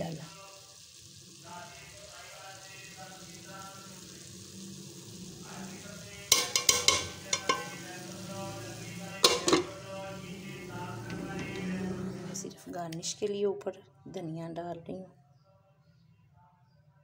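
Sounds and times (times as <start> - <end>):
metal spoon scraping a pot: 6.3 - 7.8, 9.2 - 9.7
pot lid clattering: 6.3 - 7.8, 9.2 - 9.7.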